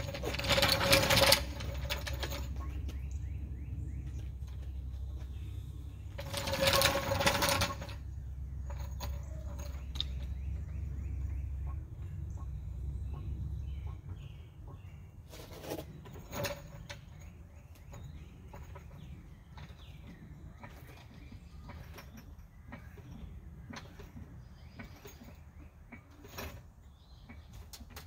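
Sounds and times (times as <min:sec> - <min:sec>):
metal rattle of floor jack: 0:00.0 - 0:02.8, 0:06.0 - 0:10.8, 0:15.3 - 0:28.0
jack rolling on concrete: 0:00.0 - 0:11.6, 0:15.2 - 0:28.0.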